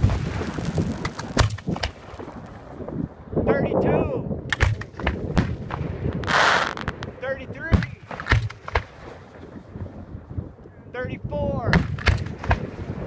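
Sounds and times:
fireworks bursting with sharp bangs: 0:00.0 - 0:03.0, 0:04.5 - 0:10.2, 0:11.7 - 0:13.0.

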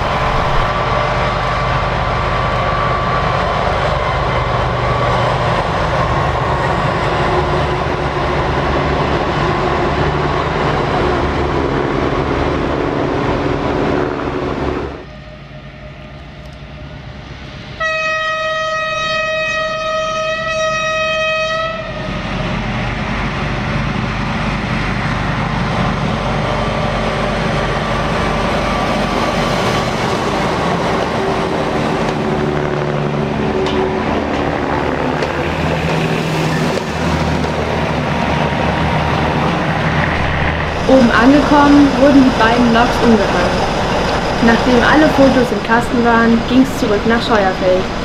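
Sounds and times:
train engines running past: 0:00.0 - 0:48.0
train horn blast: 0:17.8 - 0:22.1
wheels clattering on rails: 0:27.1 - 0:48.0.

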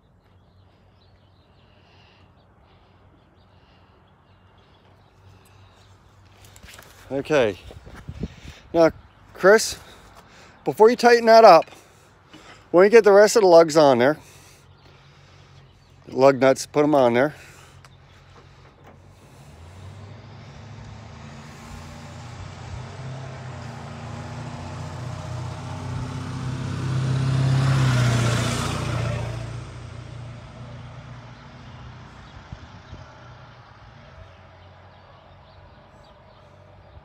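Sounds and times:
vehicle driving past: 0:17.5 - 0:37.0.

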